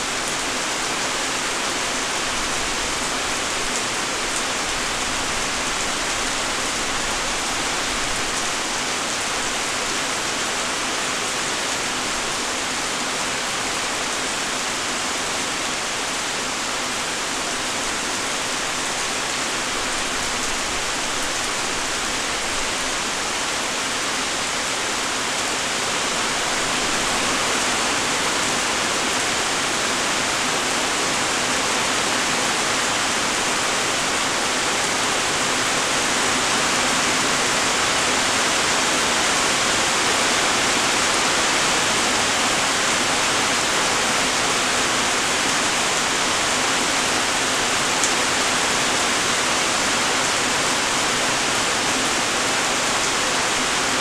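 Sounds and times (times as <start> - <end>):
light rain falling: 0.0 - 54.0.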